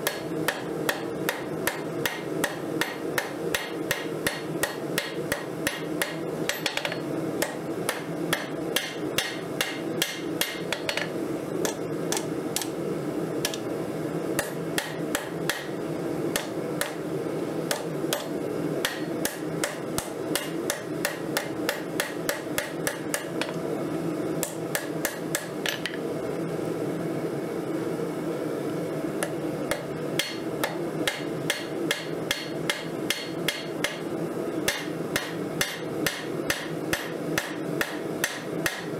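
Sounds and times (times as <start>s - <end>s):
hammer striking metal on anvil: 0.0s - 12.7s, 14.4s - 17.0s, 17.7s - 23.6s, 29.7s - 34.1s, 34.7s - 38.9s
low background hum: 0.0s - 38.9s.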